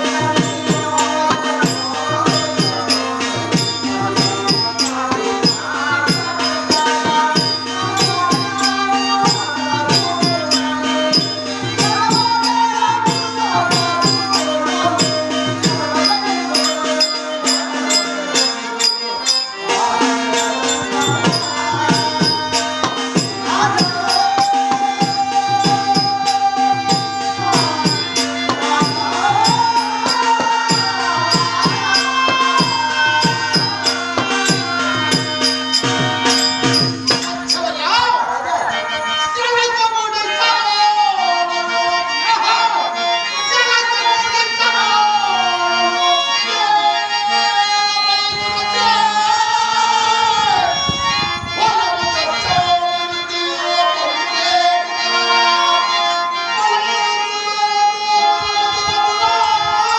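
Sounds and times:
hand percussion strokes: 0.0 - 37.9
man singing: 0.0 - 59.9.

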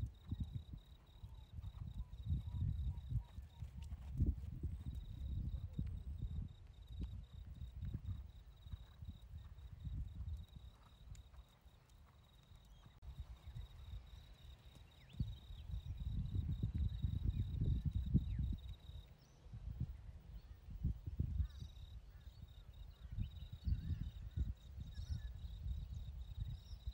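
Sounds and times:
horse hoofbeats on sand: 7.0 - 13.4.

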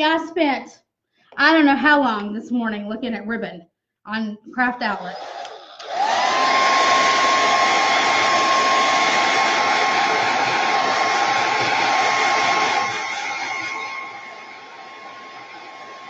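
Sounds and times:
blow dryer whining: 5.4 - 16.0.

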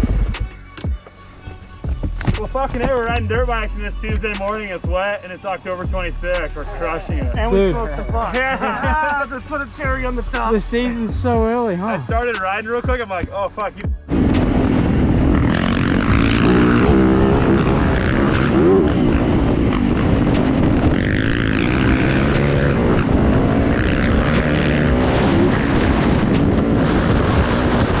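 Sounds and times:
wind and road noise: 0.0 - 28.0
dirt bike engine revving: 14.4 - 28.0.

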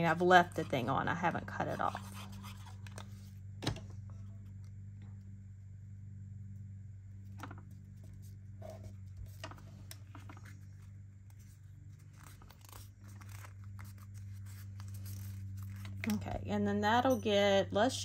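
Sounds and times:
low hum: 0.0 - 18.0
paper rustling and tapping: 7.4 - 10.8.

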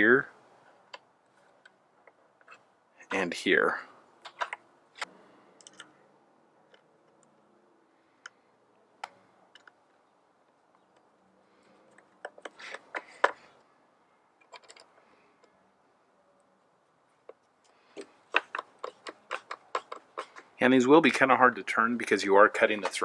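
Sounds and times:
small metallic clicks and taps: 9.0 - 11.1, 17.2 - 20.5.

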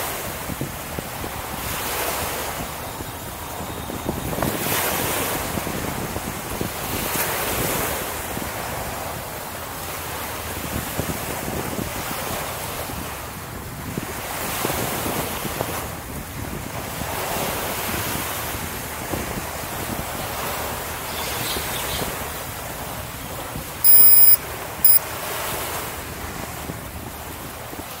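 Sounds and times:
wind on microphone: 0.0 - 28.0
high electronic beeps: 23.8 - 25.0.

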